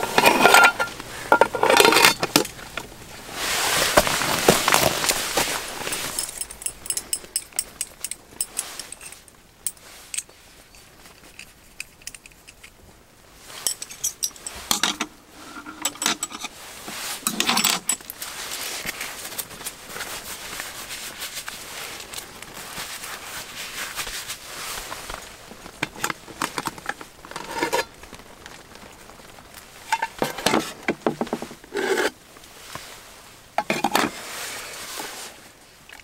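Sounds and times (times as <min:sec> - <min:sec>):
steady hiss: 0:00.0 - 0:36.0
metal tongs clinking on tin: 0:06.0 - 0:10.9.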